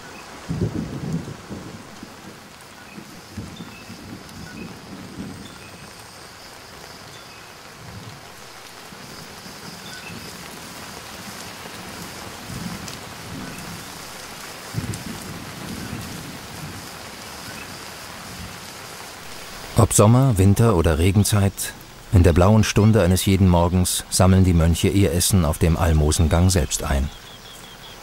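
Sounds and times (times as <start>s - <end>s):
rain falling on stone: 0.0s - 28.0s.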